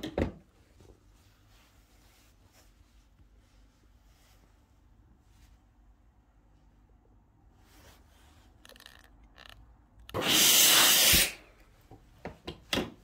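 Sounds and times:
steam iron hissing: 10.1 - 11.4.

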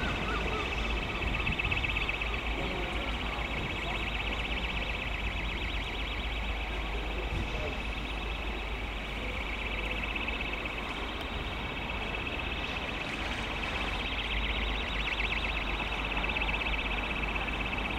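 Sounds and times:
low train rumble: 0.0 - 14.8.

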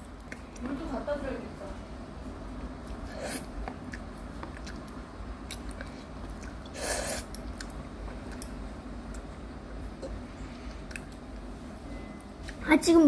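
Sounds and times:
chewing: 2.8 - 9.3, 10.7 - 11.2
child slurping noodles: 3.1 - 3.5, 6.7 - 7.3.

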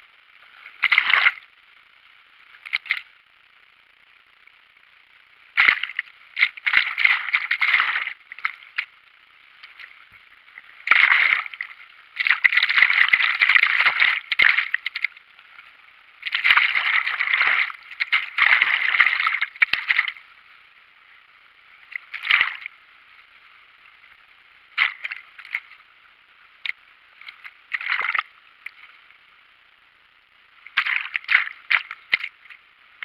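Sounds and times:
river water sloshing and gurgling: 0.4 - 1.5, 5.6 - 8.9, 9.6 - 20.2, 21.9 - 22.7, 24.8 - 25.8, 27.2 - 28.9, 30.7 - 32.6
waves washing over camera: 0.5 - 1.5, 5.6 - 9.0, 9.6 - 20.2, 21.9 - 22.7, 24.8 - 25.8, 30.7 - 32.6.

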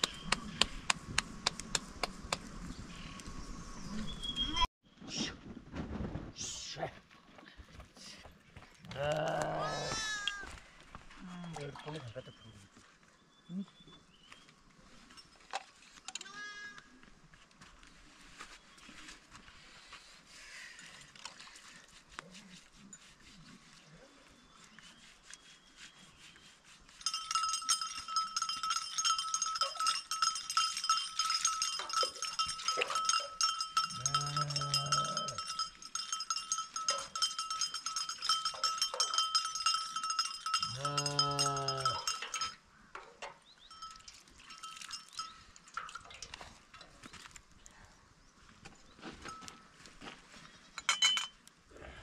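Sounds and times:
livestock bells clanking: 27.0 - 46.4.

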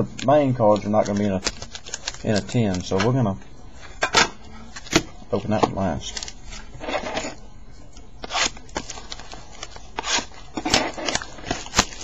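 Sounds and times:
foil wrappers crinkling: 0.6 - 3.2, 8.2 - 12.0.

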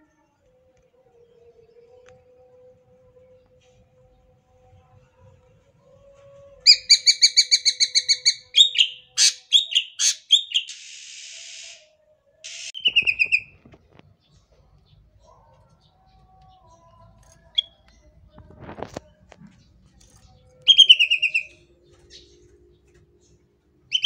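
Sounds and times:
bird singing fast trills: 6.7 - 11.8, 12.5 - 13.5, 20.7 - 22.2
harsh rasping bird note: 12.5 - 13.5.

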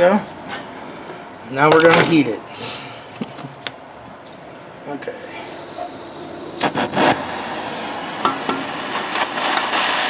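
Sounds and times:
burning gas hissing: 4.9 - 10.0
torch clicks and clanks: 5.8 - 10.0.

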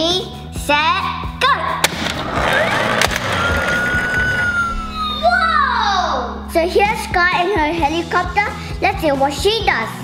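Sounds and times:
background music: 0.0 - 10.0
toy wheels rolling and rattling: 2.1 - 4.7.

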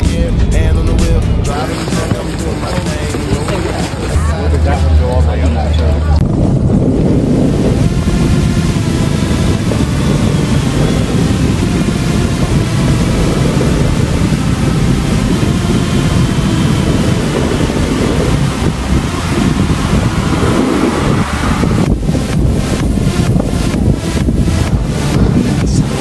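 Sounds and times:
wind buffeting microphone: 0.0 - 26.0
snowboard scraping over snow: 7.0 - 26.0.

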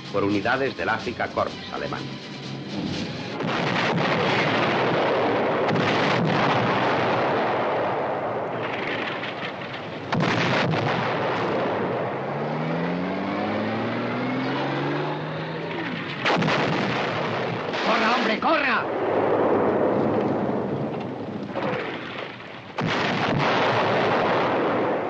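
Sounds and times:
sharp explosions: 2.5 - 25.0
shellfire din: 2.9 - 12.3, 15.6 - 25.0
rising mechanical whine: 12.3 - 16.0.

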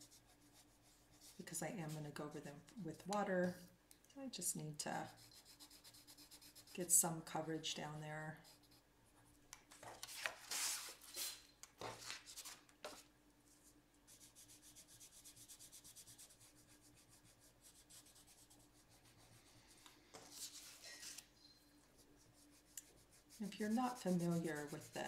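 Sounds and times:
coloured pencil scratching on paper: 0.0 - 2.0, 5.0 - 6.9, 14.1 - 21.2, 21.9 - 25.0.

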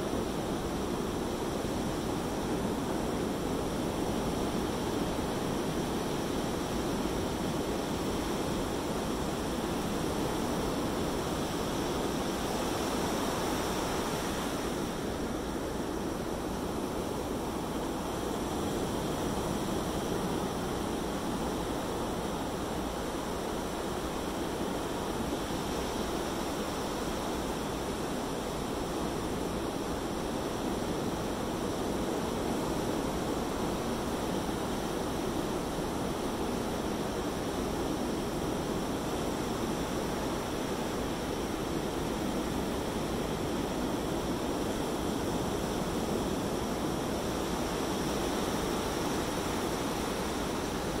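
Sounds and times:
surf washing on beach: 0.0 - 51.0.

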